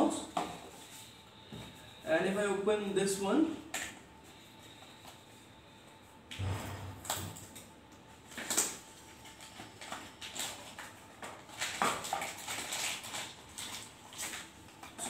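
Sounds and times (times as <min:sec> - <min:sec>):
cardboard and plastic packaging rustling: 0:08.2 - 0:15.0.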